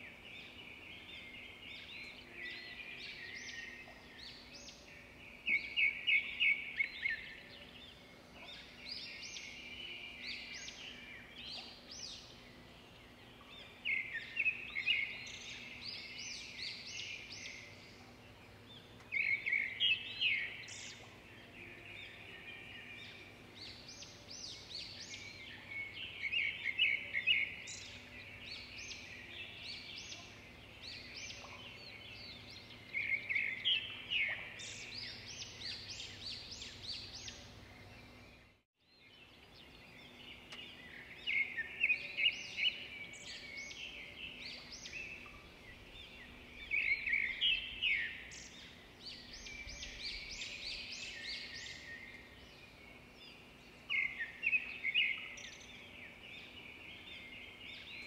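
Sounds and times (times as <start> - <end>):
birds chirping and singing: 0.0 - 58.0.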